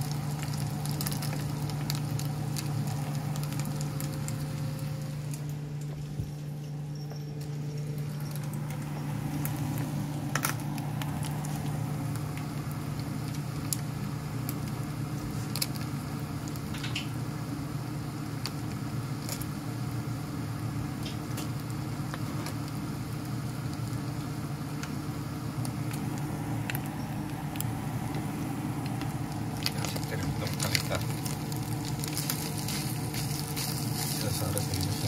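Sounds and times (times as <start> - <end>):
chicken frying in a pan: 0.0 - 5.5, 8.2 - 35.0
low hum: 0.0 - 35.0
fat spattering pops: 25.6 - 35.0.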